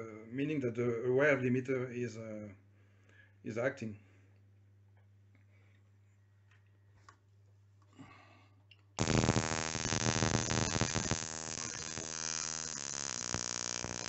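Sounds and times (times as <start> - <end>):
rasping buzz of rapid sparks: 9.0 - 14.0.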